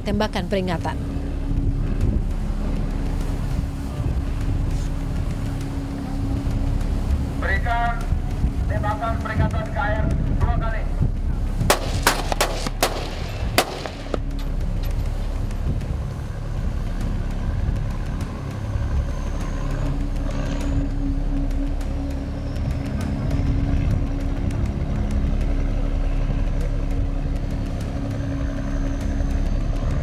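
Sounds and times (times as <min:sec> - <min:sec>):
boat engine droning: 0:00.0 - 0:30.0
sharp gunshots: 0:11.7 - 0:14.2.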